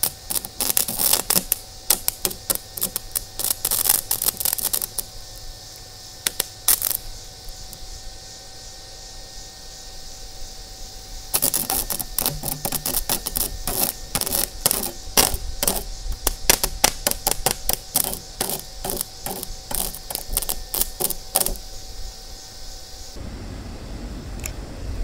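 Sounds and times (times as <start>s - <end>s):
welding arc crackling and popping: 0.0s - 7.8s, 11.3s - 21.6s.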